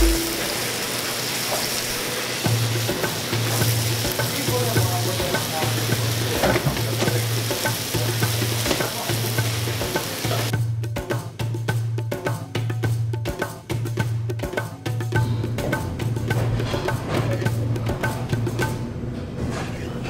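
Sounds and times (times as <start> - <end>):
percussive music: 0.0 - 0.9, 2.4 - 19.1
chicken sizzling in a pan: 0.0 - 10.5.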